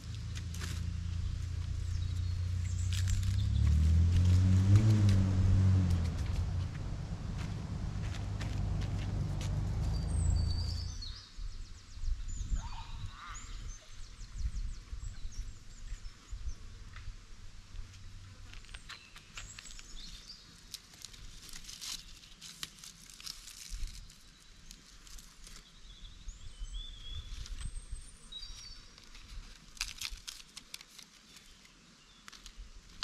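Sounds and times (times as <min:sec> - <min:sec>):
rustling: 0:00.0 - 0:10.9, 0:17.9 - 0:25.8, 0:28.4 - 0:33.0
birds chirping: 0:00.0 - 0:16.7
low steady hum: 0:00.0 - 0:18.8.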